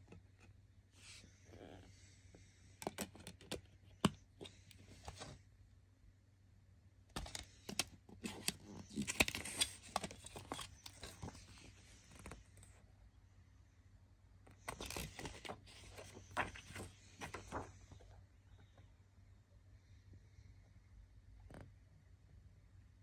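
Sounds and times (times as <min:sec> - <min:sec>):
rustling: 0:14.6 - 0:18.1.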